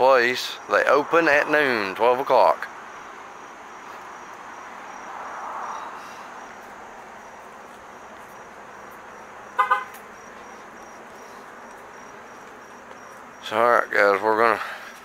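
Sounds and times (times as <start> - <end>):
vehicle passing: 0.0 - 15.0
insect chirping: 0.1 - 15.0
car horn double toot: 9.6 - 10.1.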